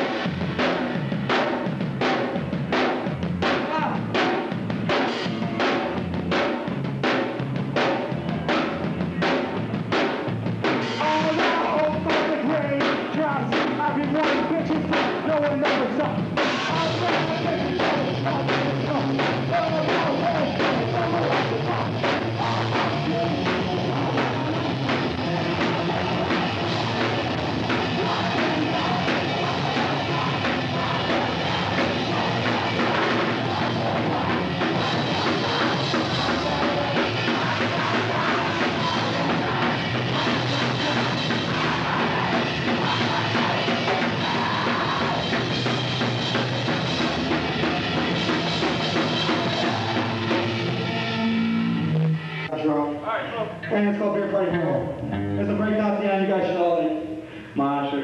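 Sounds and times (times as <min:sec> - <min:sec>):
punk band playing live: 0:00.0 - 0:52.5, 0:53.6 - 0:57.5.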